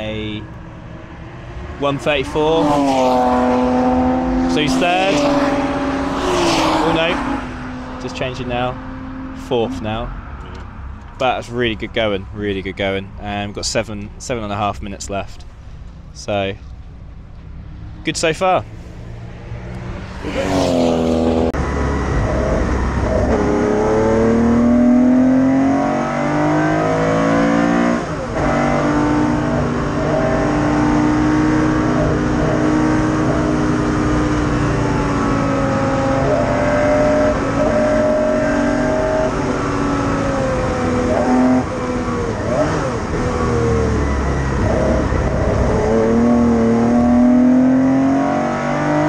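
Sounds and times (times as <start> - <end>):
racing car engine revving: 0.7 - 10.0, 19.1 - 49.0.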